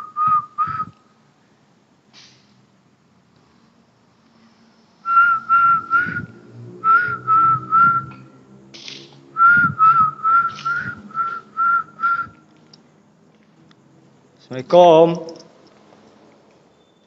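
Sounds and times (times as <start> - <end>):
short whistled notes: 5.1 - 8.2, 9.4 - 12.4.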